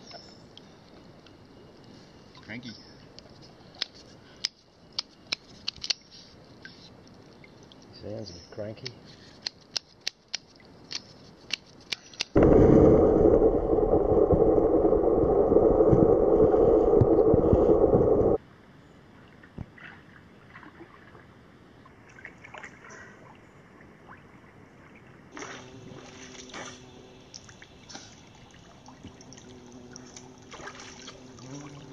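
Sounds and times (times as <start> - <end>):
creek water trickling: 6.5 - 8.3, 27.3 - 31.9
muffled underwater water rushing: 12.4 - 18.4.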